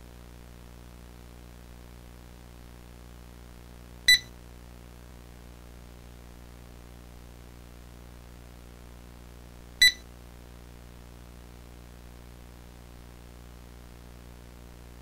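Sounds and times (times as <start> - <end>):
low hum and hiss: 0.0 - 15.0
short electronic beeps: 4.1 - 4.3, 9.8 - 10.0.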